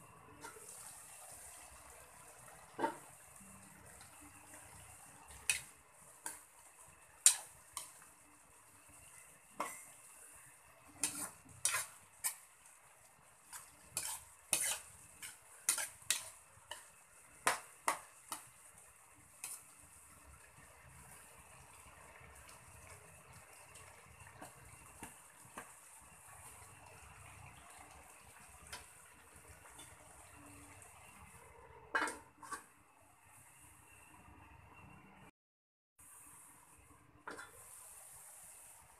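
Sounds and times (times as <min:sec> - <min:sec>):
metal ladle scraping a wok: 0:00.3 - 0:01.6, 0:05.3 - 0:06.4, 0:11.0 - 0:12.5, 0:13.5 - 0:17.6, 0:31.9 - 0:32.7, 0:37.3 - 0:37.8
faint steady hiss: 0:36.0 - 0:38.9.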